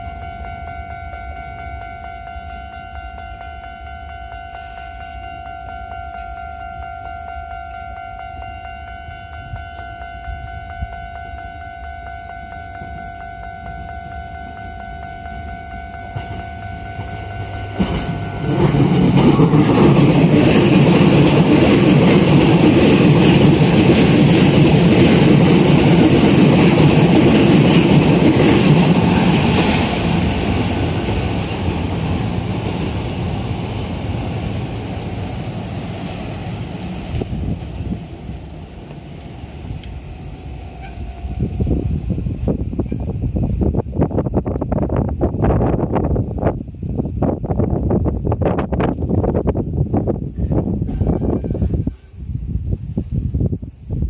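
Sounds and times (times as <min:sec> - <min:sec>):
level-crossing warning bell: 0:00.0 - 0:21.0, 0:22.6 - 0:30.3, 0:39.4 - 0:41.8
electric train passing: 0:00.0 - 0:52.4.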